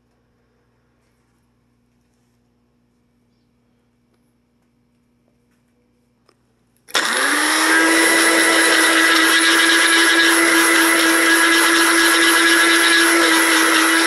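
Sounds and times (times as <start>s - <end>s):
blender motor grinding: 6.9s - 14.0s.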